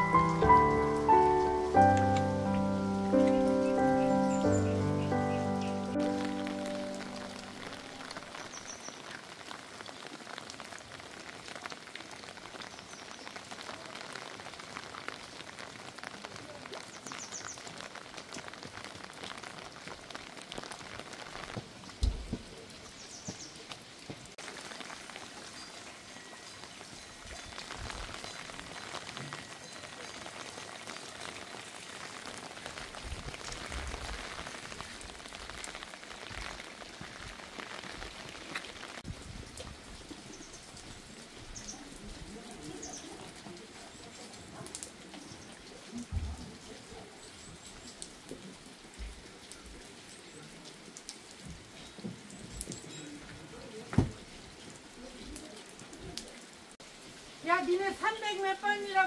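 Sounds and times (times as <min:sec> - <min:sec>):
rain pattering: 0:00.0 - 0:59.0.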